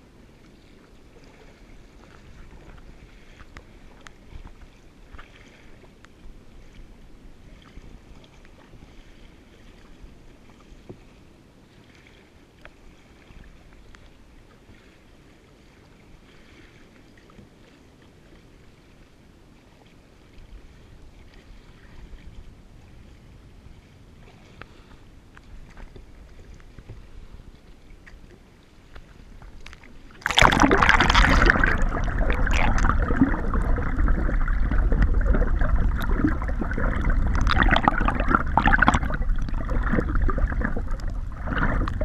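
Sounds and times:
kayak paddle strokes splashing: 0.0 - 42.0
water lapping against kayak: 0.0 - 42.0
wind rumble on microphone: 20.4 - 28.3, 30.4 - 42.0.

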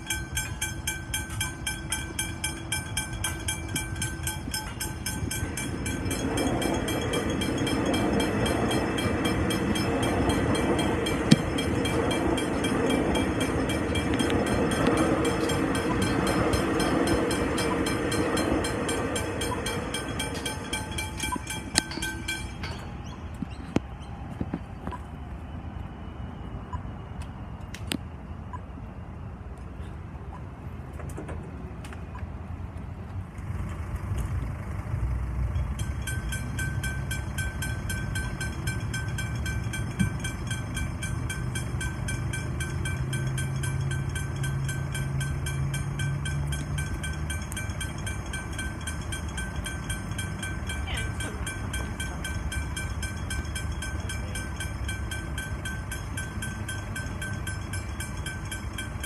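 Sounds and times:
level crossing bell ringing: 0.0 - 23.0, 35.6 - 59.0
road traffic rumble: 0.0 - 59.0.

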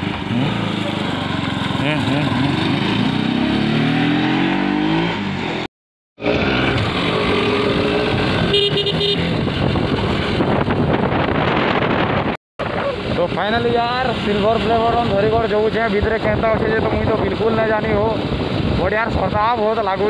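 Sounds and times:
motorcycle engine revving: 0.0 - 12.3
wind noise: 6.2 - 20.0
horn beeping: 8.5 - 9.3.

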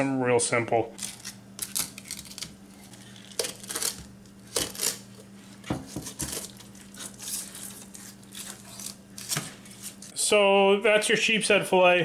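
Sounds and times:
knife crunching through fish skin: 1.0 - 5.2, 5.8 - 10.1.

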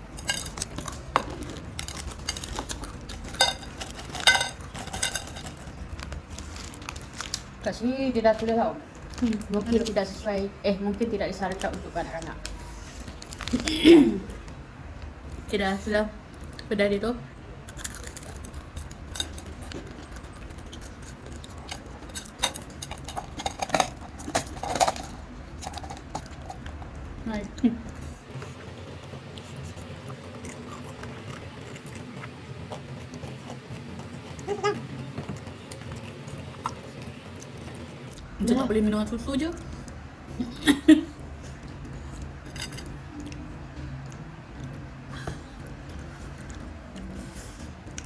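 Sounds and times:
crunchy snack being chewed: 0.2 - 7.5, 17.7 - 26.8, 29.3 - 38.3
foil packet crinkling: 0.2 - 7.6
potato crisps crunched and chewed: 0.2 - 7.6, 17.7 - 22.0.

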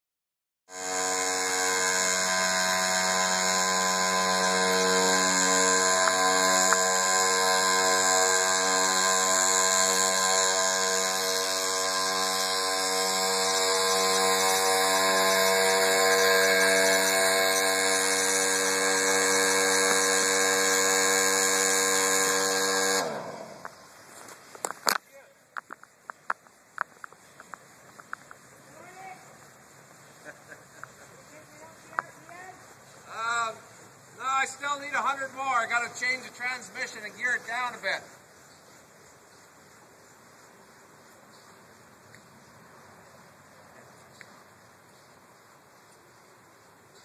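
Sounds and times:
small motor high-pitched whine: 0.7 - 25.0.

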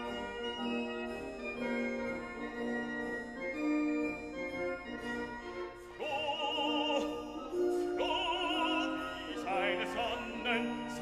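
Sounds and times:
orchestral accompaniment: 0.0 - 11.0
soprano operatic singing: 6.0 - 11.0.

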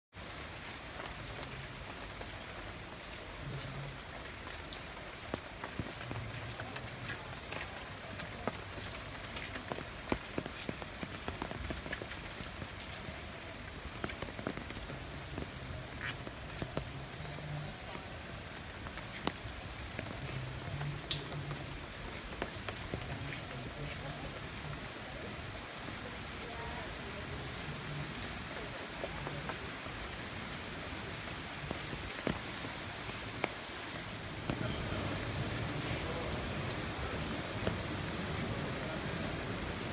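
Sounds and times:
rain on leaves and path: 0.1 - 39.9
water drips and taps: 13.8 - 24.2, 31.6 - 32.4.

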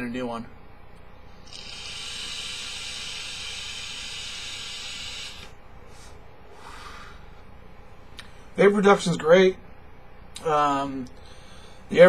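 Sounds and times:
vape airflow hiss: 1.4 - 5.6.

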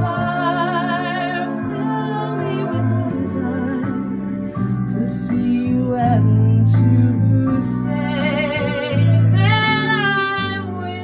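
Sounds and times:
instrumental backing track with bass: 0.0 - 11.0
woman singing a slow ballad: 0.0 - 11.0.

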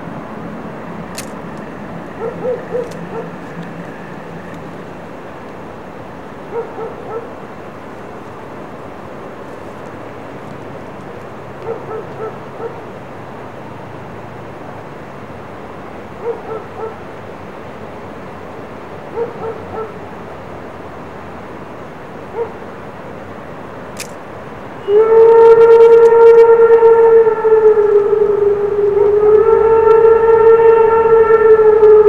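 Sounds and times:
steady low rumble: 0.0 - 16.2
dog barking: 2.2 - 3.4, 6.5 - 7.4, 11.6 - 12.9, 16.2 - 17.0, 19.1 - 20.0, 22.3 - 22.6.

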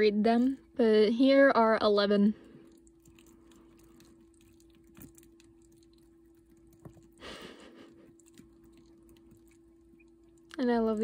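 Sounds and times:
steady low hum: 0.0 - 11.0
chicks pecking and scratching: 2.5 - 11.0.

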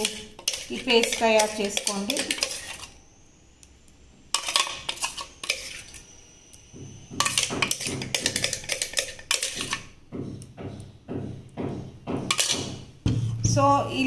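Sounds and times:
metal spoon scraping steel jar: 0.0 - 3.0, 4.4 - 6.0, 7.2 - 9.8, 12.3 - 12.7.

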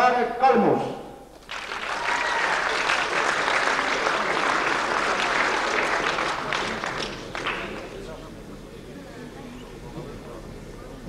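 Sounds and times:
audience applauding: 1.4 - 8.3.

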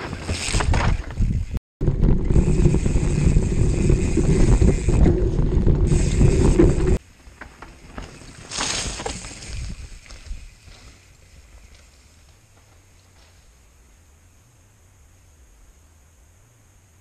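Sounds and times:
wind buffeting microphone: 0.0 - 7.0
tyre rumble over ground: 0.0 - 13.4
bike tyres passing on trail: 0.0 - 14.4.

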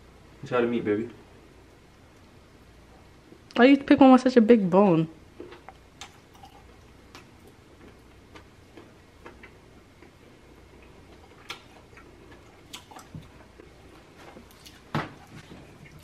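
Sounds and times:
mouth clicks of chewing: 5.4 - 7.3.

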